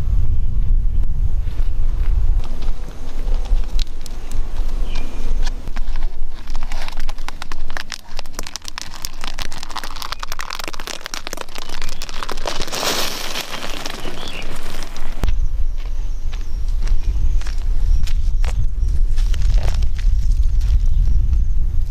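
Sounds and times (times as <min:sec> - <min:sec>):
gravel crunching under feet: 0:01.4 - 0:21.9
stones sliding: 0:05.4 - 0:15.3.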